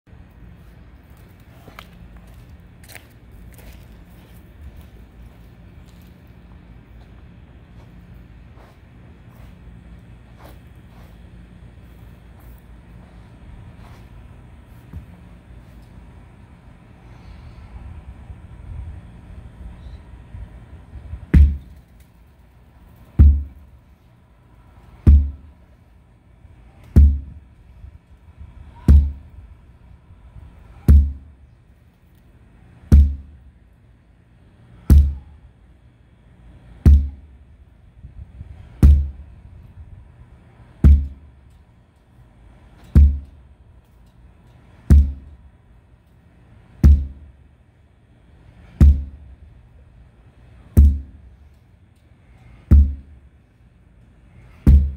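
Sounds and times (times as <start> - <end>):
sledgehammer striking rubber tire: 21.3 - 21.8, 23.2 - 23.6, 25.0 - 25.5, 26.9 - 27.4, 28.8 - 29.3, 30.8 - 31.3, 32.9 - 33.4, 34.8 - 35.2, 36.8 - 37.3, 38.8 - 39.2, 40.8 - 41.2, 42.8 - 43.4, 44.8 - 45.4, 46.8 - 47.3, 48.6 - 49.2, 50.7 - 51.2, 52.5 - 53.2, 54.5 - 54.9.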